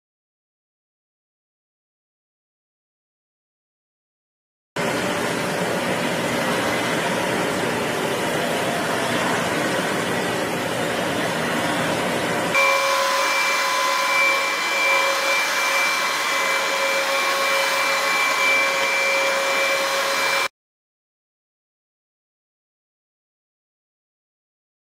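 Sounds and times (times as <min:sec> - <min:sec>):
high-pitched motor whine: 0:04.8 - 0:20.5
vacuum cleaner rushing noise: 0:04.8 - 0:20.5.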